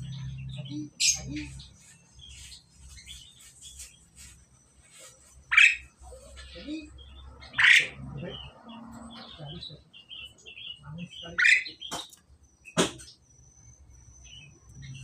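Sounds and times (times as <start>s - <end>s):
birds soft chattering: 0.0s - 15.0s
starlings harsh calls: 5.0s - 13.2s.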